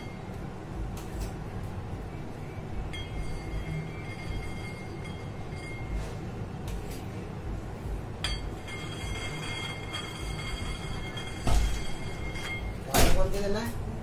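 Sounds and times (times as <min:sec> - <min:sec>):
faint high whine: 0:01.6 - 0:13.0.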